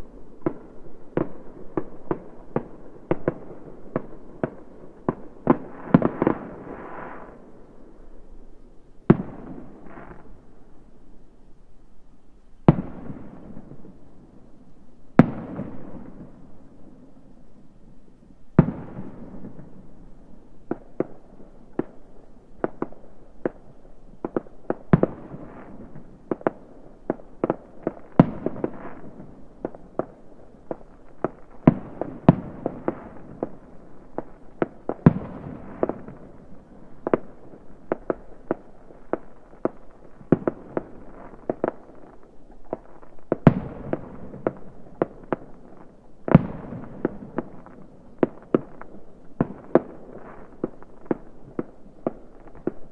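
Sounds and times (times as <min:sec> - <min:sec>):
fireworks bangs and pops: 0:00.0 - 0:07.4, 0:12.6 - 0:13.9, 0:20.6 - 0:52.9.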